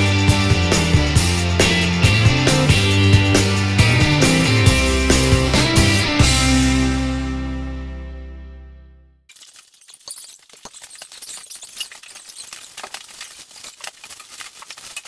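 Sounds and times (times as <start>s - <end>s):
plastic-wrapped bales crackling: 9.3s - 15.0s.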